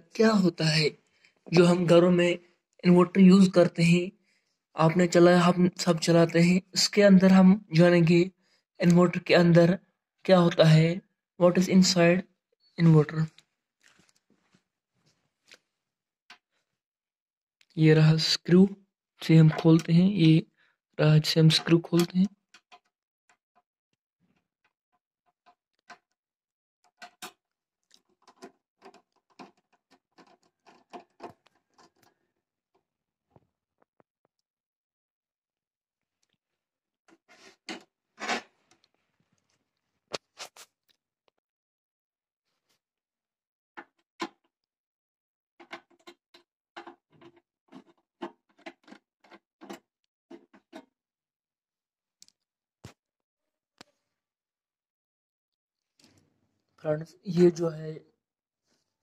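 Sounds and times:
screwdriver clicking and scraping: 0:28.0 - 0:32.1.

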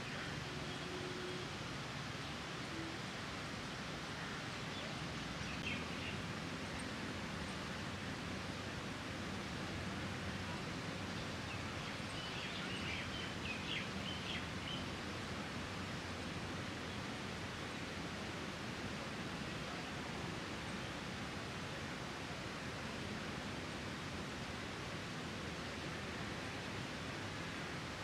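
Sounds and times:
outdoor background hiss: 0:00.0 - 0:28.0.

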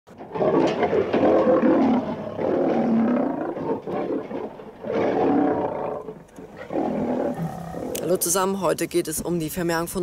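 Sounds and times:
lion roaring: 0:00.2 - 0:08.2.

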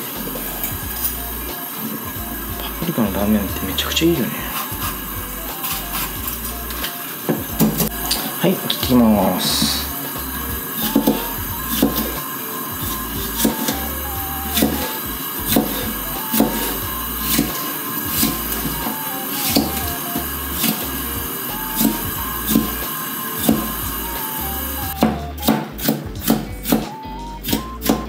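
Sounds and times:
background music: 0:00.0 - 0:28.0.

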